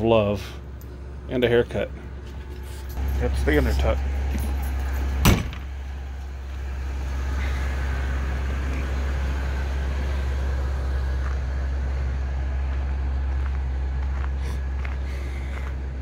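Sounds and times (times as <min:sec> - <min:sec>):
motorhome engine idling: 0:00.0 - 0:16.0
door slamming shut: 0:05.2 - 0:05.7.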